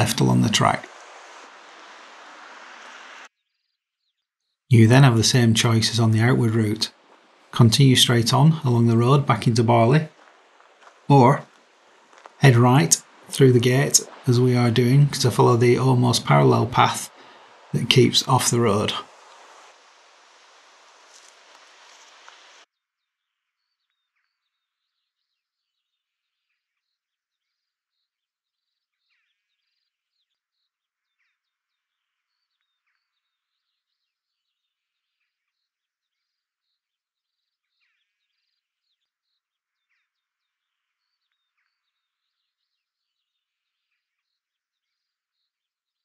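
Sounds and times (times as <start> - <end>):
steady hiss: 0.0 - 3.3, 4.7 - 22.7
small birds chirping: 0.0 - 46.0.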